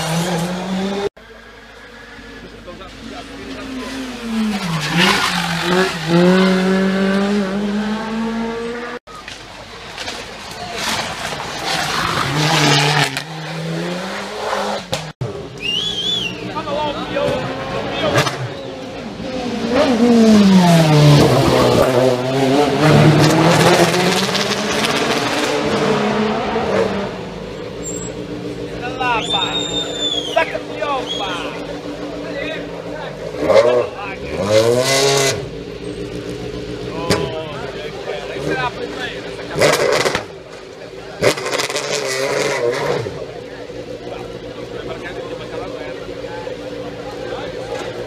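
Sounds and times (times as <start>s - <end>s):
quieter engine: 0.0s - 48.0s
race car engine passing: 3.1s - 9.0s, 15.7s - 48.0s.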